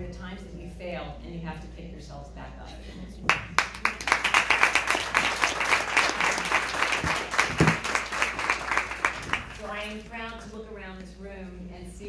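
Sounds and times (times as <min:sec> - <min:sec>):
audience applauding: 0:03.3 - 0:09.7.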